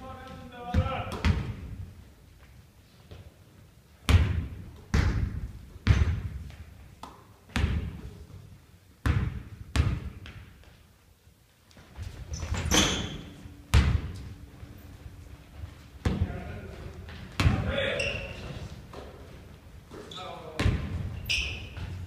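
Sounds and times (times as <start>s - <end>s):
basketball bouncing on wooden floor: 4.1s - 6.6s, 7.5s - 8.1s, 9.0s - 10.5s, 12.3s - 14.5s, 17.1s - 19.2s, 20.6s - 22.0s.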